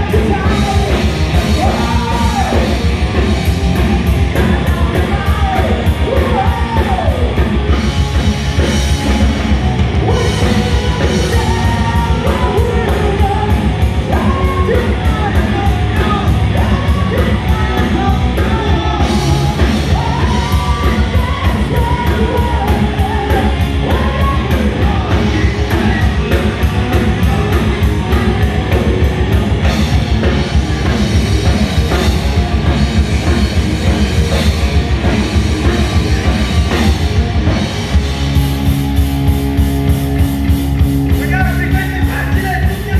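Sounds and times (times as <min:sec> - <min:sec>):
man singing lead vocals: 0:00.0 - 0:07.8, 0:08.7 - 0:31.1, 0:41.1 - 0:42.9
heavy metal band playing live: 0:00.0 - 0:42.9.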